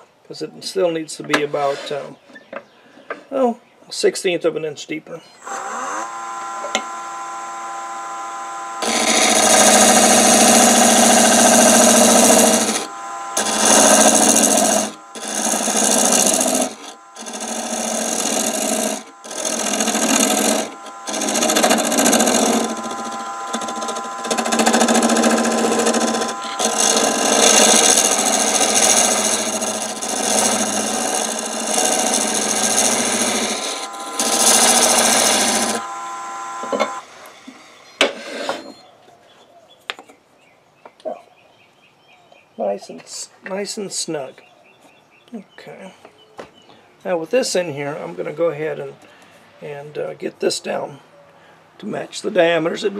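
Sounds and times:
turning tool scraping wood: 0:01.4 - 0:02.2, 0:05.4 - 0:38.8
lathe motor hum: 0:05.4 - 0:38.6.

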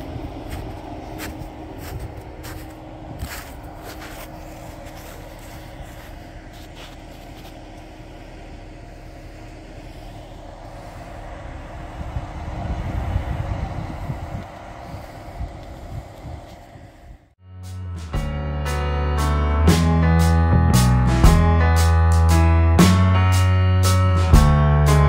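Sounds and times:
pickup truck engine in mud: 0:00.0 - 0:16.8.

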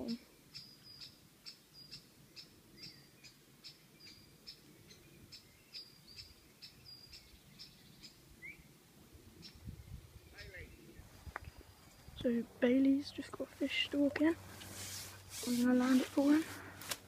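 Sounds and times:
small bird chirping: 0:00.0 - 0:08.7, 0:09.4 - 0:14.1.

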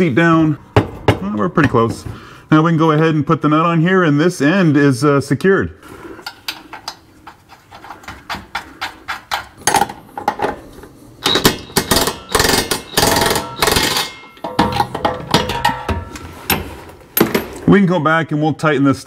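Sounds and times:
hand tools clicking on nut: 0:06.2 - 0:10.0
impact wrench hammering: 0:11.2 - 0:17.5.

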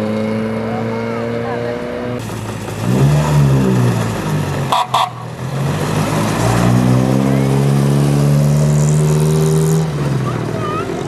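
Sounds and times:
car horn toots: 0:04.7 - 0:05.2.

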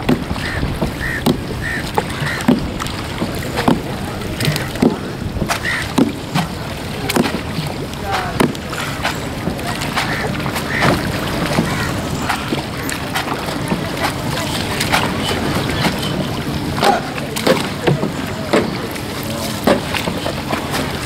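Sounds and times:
water: 0:00.0 - 0:21.0
wet laundry slapping on stone: 0:03.6 - 0:12.5.

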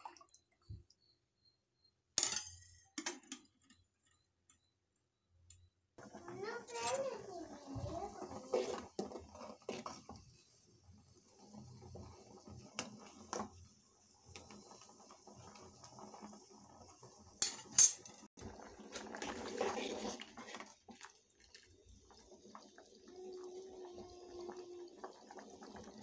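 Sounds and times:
water sloshing: 0:00.0 - 0:00.9.

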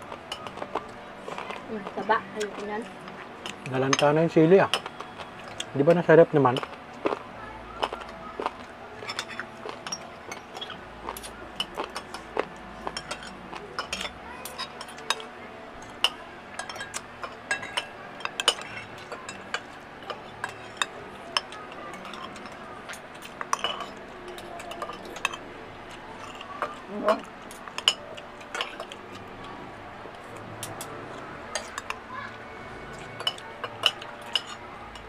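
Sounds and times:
cutlery clinking on plates: 0:09.0 - 0:25.4, 0:32.9 - 0:35.0.

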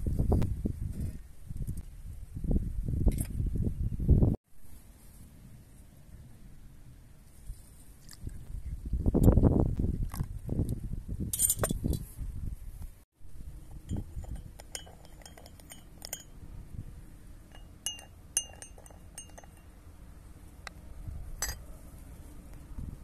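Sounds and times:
teaspoon clinking against glass cup: 0:13.8 - 0:16.4, 0:17.5 - 0:19.7.

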